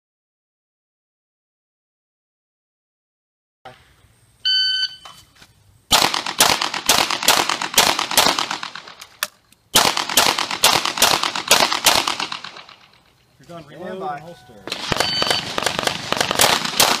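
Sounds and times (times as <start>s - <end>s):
shot timer beep: 4.5s - 5.2s, 14.5s - 15.5s
pistol shots: 5.9s - 13.0s, 14.6s - 17.0s.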